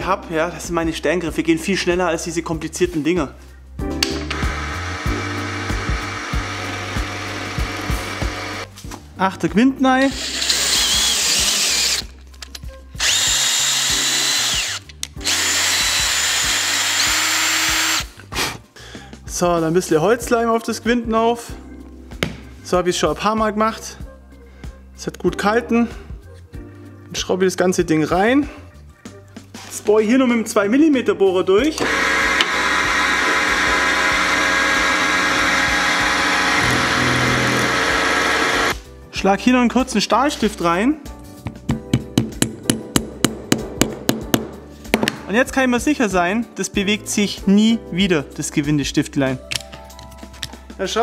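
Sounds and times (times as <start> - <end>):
cordless drill motor whine: 4.3 - 8.7, 10.2 - 12.1, 13.0 - 18.1, 31.8 - 38.8.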